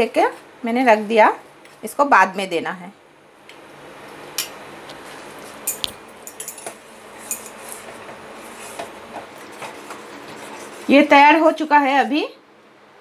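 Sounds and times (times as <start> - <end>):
spoon clinking against pot: 5.7 - 7.6.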